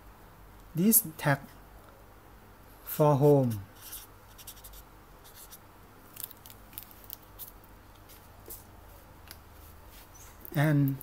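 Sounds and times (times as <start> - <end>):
marker scratching on plastic card: 3.4 - 5.6.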